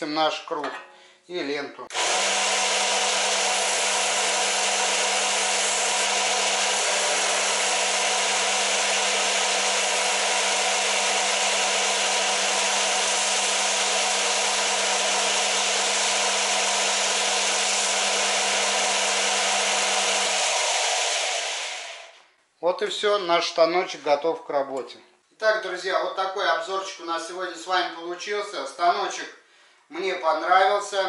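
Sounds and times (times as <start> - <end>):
sander motor humming: 1.9 - 22.2.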